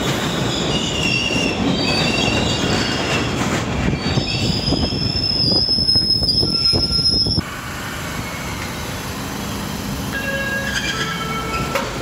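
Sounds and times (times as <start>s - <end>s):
train wheels squealing: 0.0s - 7.4s, 10.2s - 11.9s
subway train rumbling: 0.0s - 12.0s.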